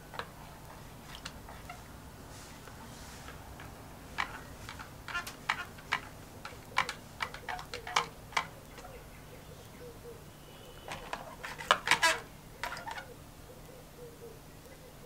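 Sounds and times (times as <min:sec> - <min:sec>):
metal hangers clinking: 0:02.7 - 0:09.0.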